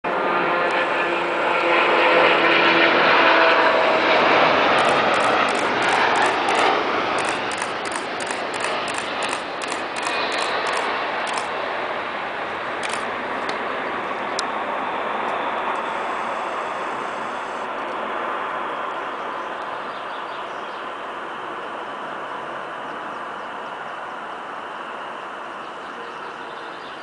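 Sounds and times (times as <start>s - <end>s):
jet engines roaring on landing: 0.1s - 27.0s
faint high ticks: 7.2s - 11.5s.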